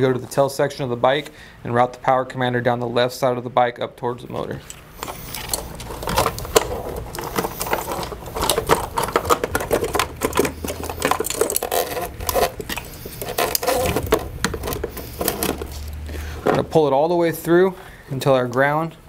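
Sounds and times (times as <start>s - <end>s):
wires and connectors rattling on plastic: 4.6s - 16.9s.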